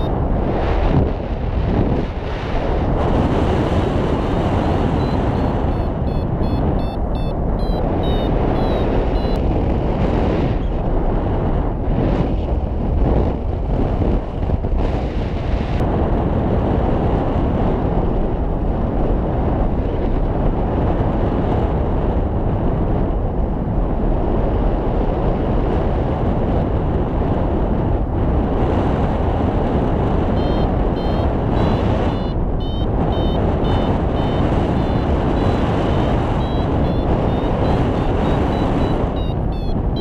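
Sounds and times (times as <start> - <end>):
wind buffeting microphone: 0.0 - 40.0
variometer beeping: 4.8 - 9.4, 30.4 - 40.0.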